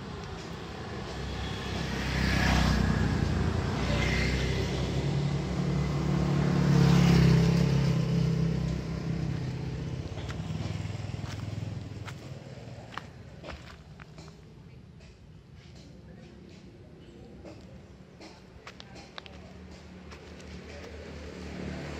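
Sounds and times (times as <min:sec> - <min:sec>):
vehicles passing: 0:00.0 - 0:21.9.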